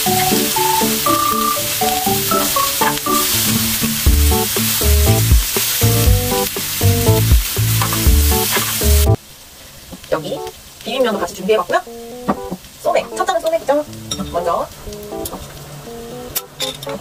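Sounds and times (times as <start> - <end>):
meat sizzling on a grill pan: 0.0 - 9.0
background music with bass beat: 4.1 - 9.2.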